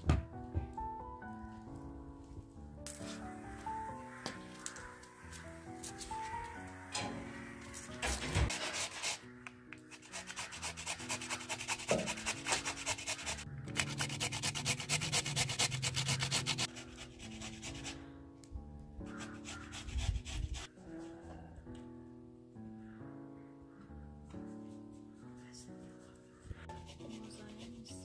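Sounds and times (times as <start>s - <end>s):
soft background music: 0.0s - 28.0s
potato grating on metal grater: 9.9s - 17.8s.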